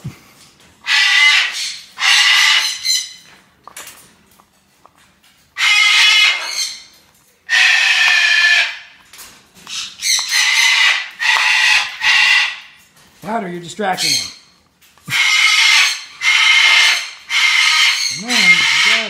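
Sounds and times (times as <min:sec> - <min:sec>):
parrot screeching: 0:00.8 - 0:03.3, 0:05.6 - 0:06.9, 0:07.5 - 0:09.0, 0:09.7 - 0:12.8, 0:14.0 - 0:14.5, 0:15.1 - 0:19.0.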